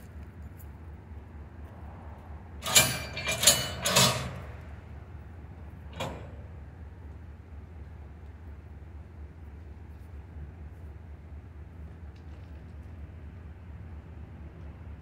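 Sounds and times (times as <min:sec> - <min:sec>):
steady low hum: 0:00.0 - 0:15.0
freight cars banging and clanking: 0:02.2 - 0:07.3.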